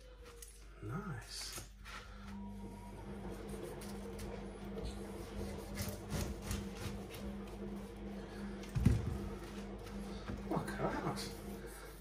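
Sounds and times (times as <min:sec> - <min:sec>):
steady low hum: 0:00.0 - 0:12.0
knife sawing through pineapple: 0:05.2 - 0:07.0.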